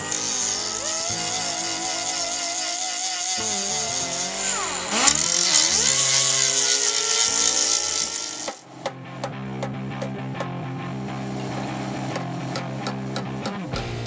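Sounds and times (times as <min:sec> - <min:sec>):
die grinder grinding metal: 0:00.0 - 0:08.7
music with a regular beat: 0:12.1 - 0:14.0.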